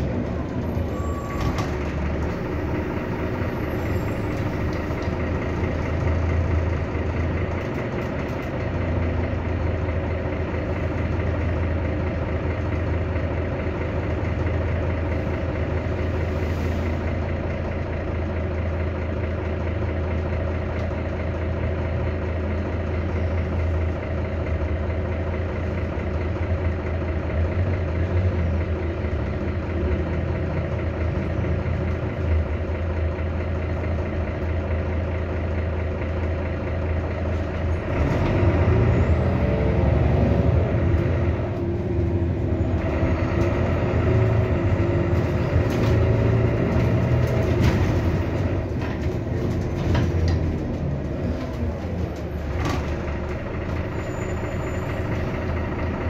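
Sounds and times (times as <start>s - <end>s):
bus engine idling: 0.0s - 56.0s.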